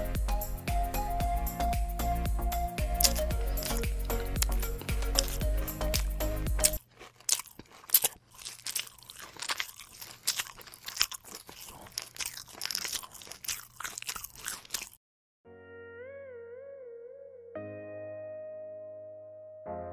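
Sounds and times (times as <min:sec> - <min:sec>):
background music: 0:00.0 - 0:06.8
electronic music with wavering tones: 0:00.0 - 0:06.8
crunching and chewing crispy food: 0:02.8 - 0:15.0.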